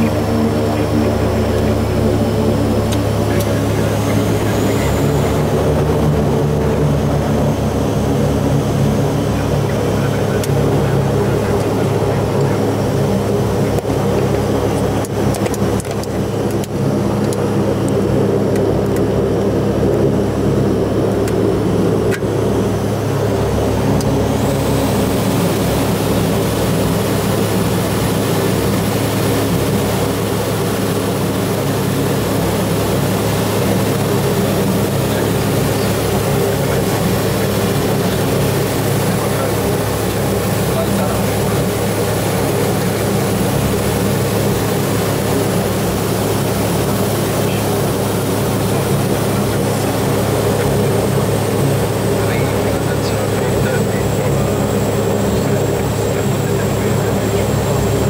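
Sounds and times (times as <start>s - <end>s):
faint high whine: 0.0s - 15.0s
turboprop engines droning: 0.0s - 58.0s.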